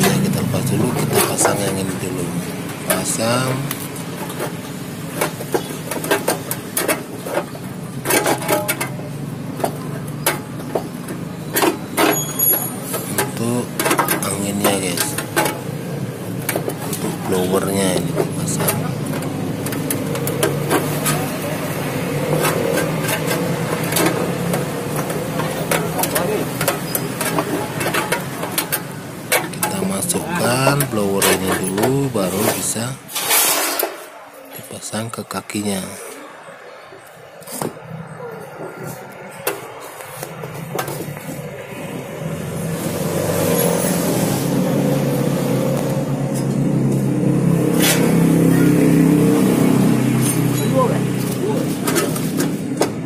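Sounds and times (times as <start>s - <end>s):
metal parts knocking and scraping: 0.0s - 2.0s, 2.7s - 34.1s, 50.2s - 53.0s.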